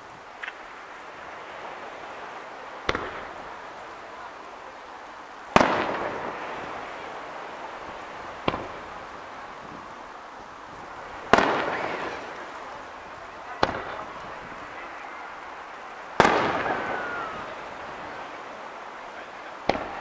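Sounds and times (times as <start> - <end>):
firework booms echoing: 2.8 - 3.7, 5.5 - 7.2, 7.8 - 9.8, 11.0 - 15.0, 16.1 - 18.3, 19.6 - 20.0.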